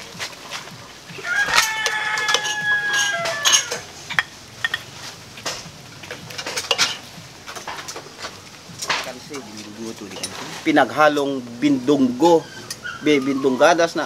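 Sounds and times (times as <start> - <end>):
rooster crowing: 1.1 - 4.0
metal ladle clinking on pot: 1.4 - 8.1.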